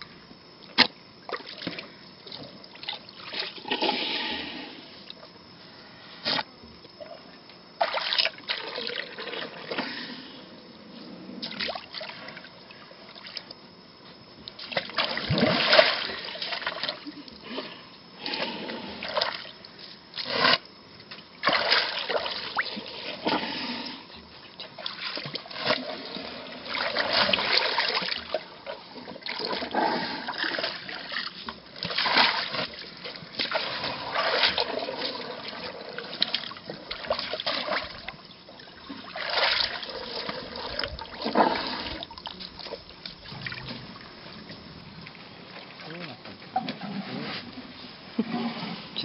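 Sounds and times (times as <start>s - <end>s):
water splashing and trickling: 30.5s - 44.1s.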